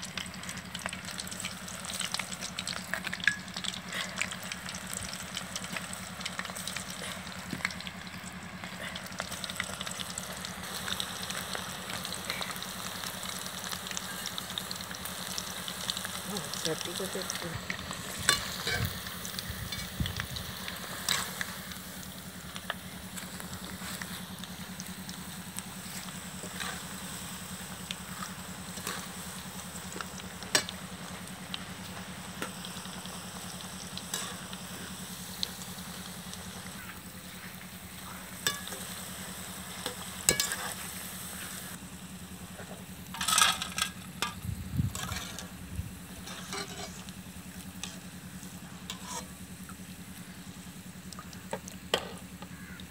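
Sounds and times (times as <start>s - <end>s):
deep-frying sizzle in oil: 0.0s - 52.9s
skimmer clinking and scraping pan: 18.2s - 19.0s, 38.5s - 39.0s, 39.8s - 40.8s, 43.1s - 45.6s, 46.2s - 47.1s, 48.8s - 49.4s.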